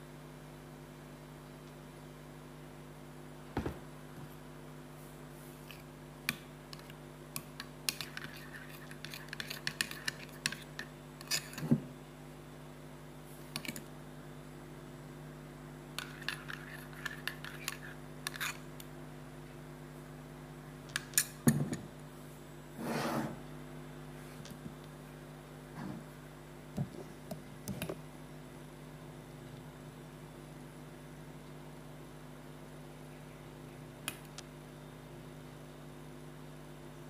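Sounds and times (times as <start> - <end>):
steady low hum: 0.0 - 37.0
metal spoon scraping ceramic bowl: 7.9 - 11.7, 16.0 - 18.6.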